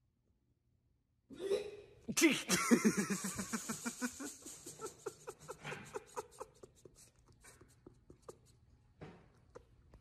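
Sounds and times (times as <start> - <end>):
faint breathy laughter: 2.7 - 8.5.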